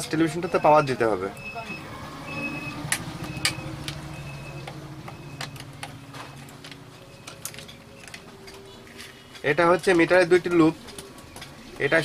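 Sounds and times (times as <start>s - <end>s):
faint high beeps: 0.4s - 5.6s
sharp ticks and clicks: 2.9s - 8.2s.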